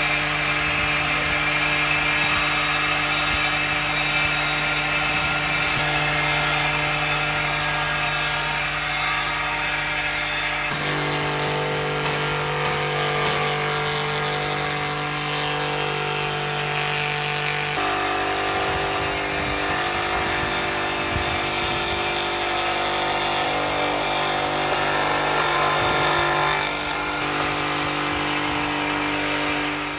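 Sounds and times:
table saw motor whine: 0.0s - 29.9s
saw blade rasping through wood: 10.7s - 29.9s.

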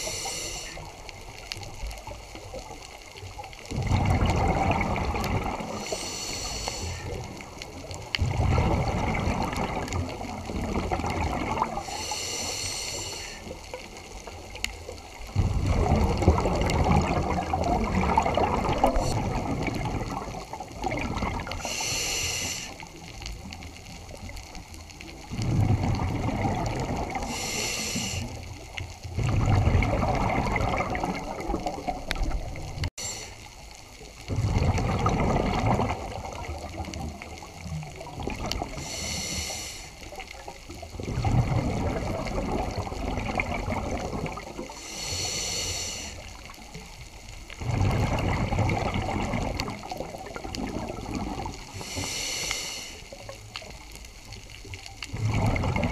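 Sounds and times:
regulator inhale hiss: 0.0s - 1.0s, 5.8s - 7.2s, 11.8s - 13.7s, 21.5s - 23.0s, 27.2s - 28.6s, 33.0s - 33.6s, 38.7s - 40.2s, 44.7s - 46.6s, 51.7s - 53.4s
exhaled bubbles rushing: 1.9s - 12.0s, 13.8s - 21.8s, 25.1s - 32.9s, 34.2s - 39.0s, 40.1s - 44.8s, 46.4s - 52.1s, 53.1s - 55.9s.

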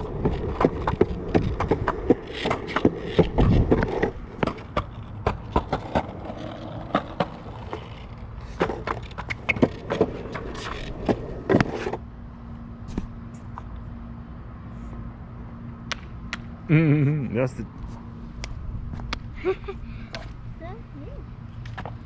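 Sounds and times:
skateboard wheels clacking over joints: 0.0s - 12.0s
skateboard wheels rolling on concrete: 0.0s - 22.0s.

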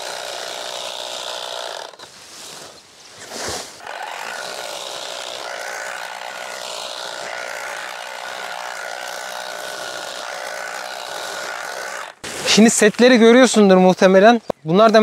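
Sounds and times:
electric cutter whining: 3.8s - 12.2s.

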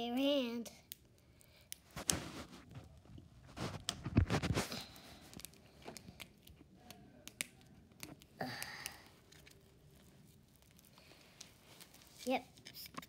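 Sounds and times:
plastic wrapping rustling: 1.8s - 6.7s, 9.1s - 13.0s.

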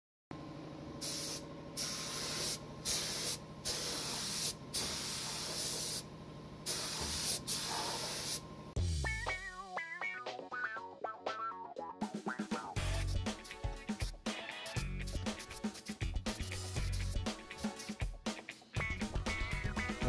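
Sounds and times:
spray gun hissing: 1.0s - 8.4s.

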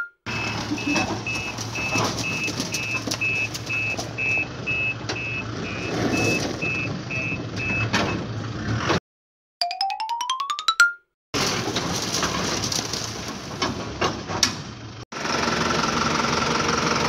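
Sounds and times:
truck reversing alarm beeping: 0.0s - 8.3s
engine hum: 0.3s - 9.0s, 11.4s - 17.0s.

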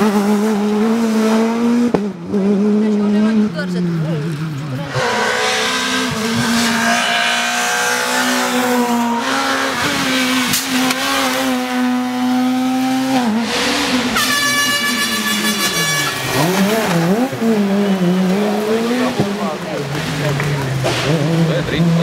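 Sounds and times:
rally car engines at high revs: 0.0s - 22.0s
air horn blowing: 4.9s - 9.7s, 13.3s - 18.2s.

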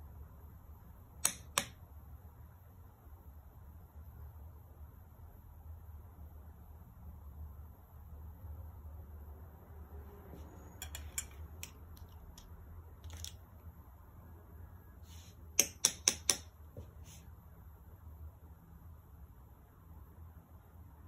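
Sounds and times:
low steady hum: 0.0s - 21.0s
makeup tools clicking and tapping: 1.2s - 1.8s, 10.8s - 13.4s, 15.6s - 16.6s.

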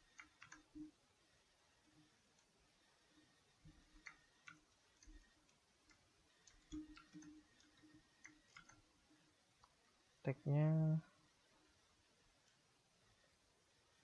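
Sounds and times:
mouse and keyboard clicks: 0.0s - 0.9s, 3.7s - 8.8s.

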